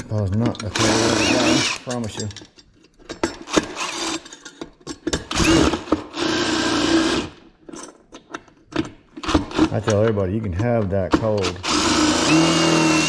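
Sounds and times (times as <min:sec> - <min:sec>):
sharp clicks and knocks: 0:00.0 - 0:00.9, 0:07.6 - 0:11.6
power drill running: 0:00.7 - 0:01.9, 0:03.5 - 0:04.2, 0:05.3 - 0:07.4, 0:11.6 - 0:13.0.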